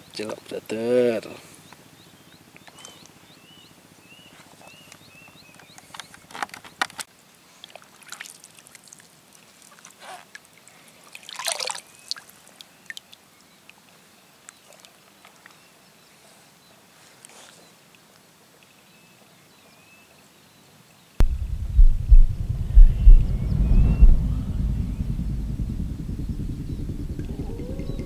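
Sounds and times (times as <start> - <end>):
water splashes and drips: 7.4 - 15.6.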